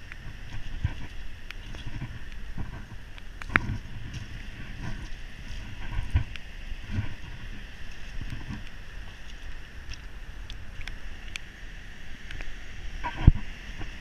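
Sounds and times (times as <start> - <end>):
footsteps on pebbles: 0.0 - 11.1.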